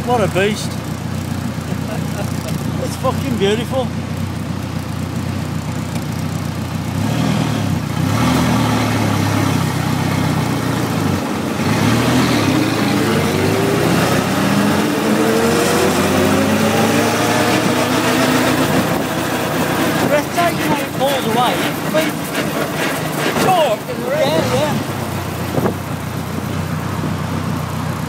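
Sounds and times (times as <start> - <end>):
racing car engine accelerating: 6.9 - 27.8.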